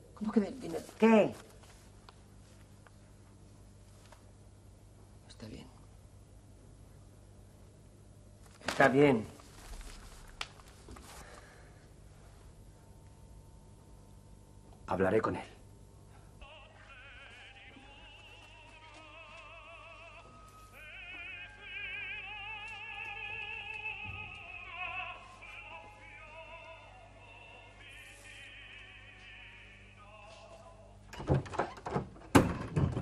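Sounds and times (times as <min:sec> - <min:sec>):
operatic singing from small speaker: 0:16.4 - 0:30.9.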